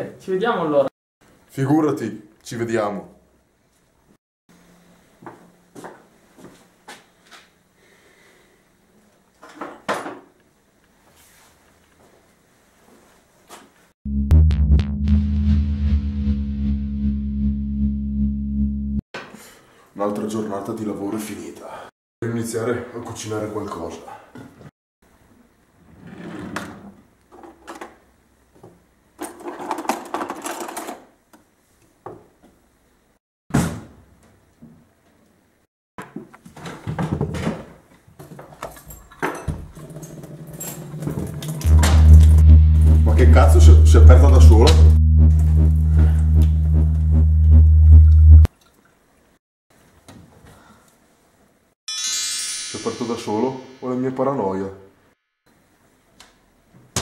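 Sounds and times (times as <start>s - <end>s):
knocks and clatters of handling things: 9.4s - 10.4s, 28.6s - 32.6s, 36.0s - 41.6s.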